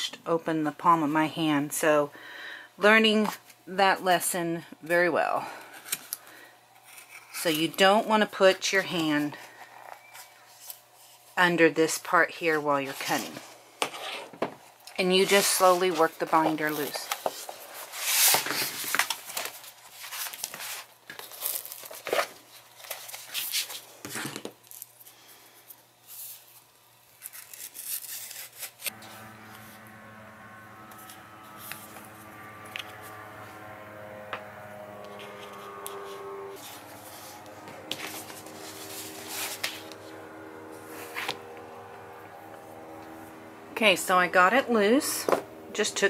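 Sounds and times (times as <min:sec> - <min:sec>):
paper crackling and ripping: 0:15.3 - 0:23.8, 0:27.2 - 0:29.4, 0:36.6 - 0:40.1
soft music of held tones: 0:28.9 - 0:46.0.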